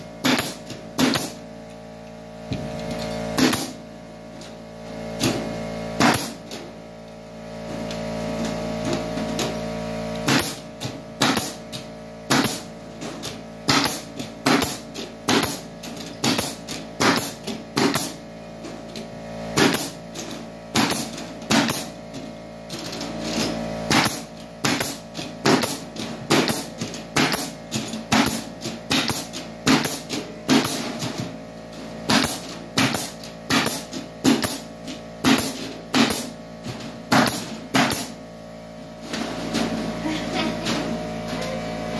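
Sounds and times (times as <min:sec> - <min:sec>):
pneumatic stapler firing: 0:00.2 - 0:01.5, 0:02.5 - 0:06.8, 0:08.4 - 0:18.2, 0:19.5 - 0:31.4, 0:32.0 - 0:38.2.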